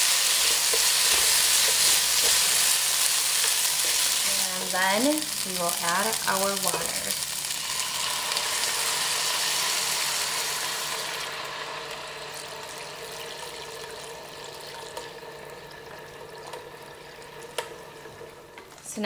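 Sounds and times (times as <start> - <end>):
water pouring into hot pot: 7.4 - 18.5.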